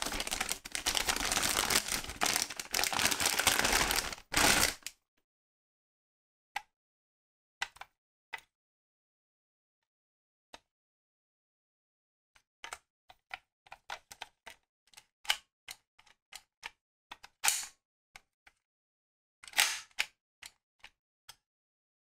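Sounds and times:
plastic toy clicks and taps: 7.6s - 8.5s, 12.4s - 18.6s, 19.4s - 21.4s.

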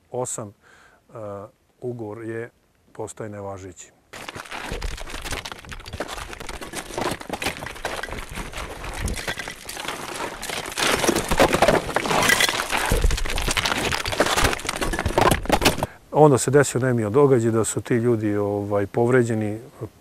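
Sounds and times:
stones cracking and clattering: 4.1s - 16.0s.

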